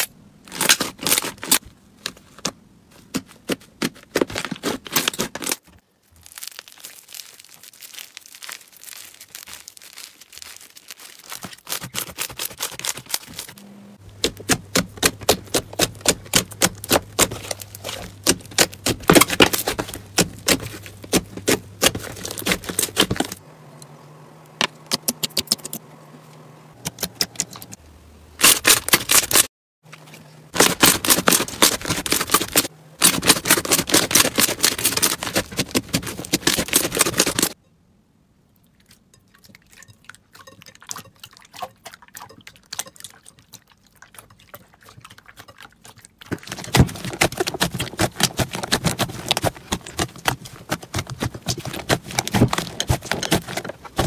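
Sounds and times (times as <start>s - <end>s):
slime squishing and popping: 6.2s - 13.6s, 14.2s - 23.4s, 41.5s - 54.0s.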